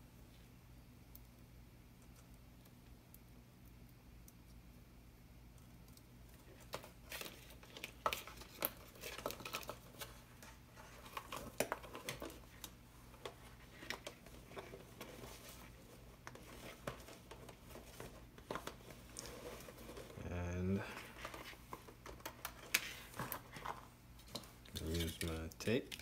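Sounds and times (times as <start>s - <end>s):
plastic bottle crinkling: 20.8s - 26.0s.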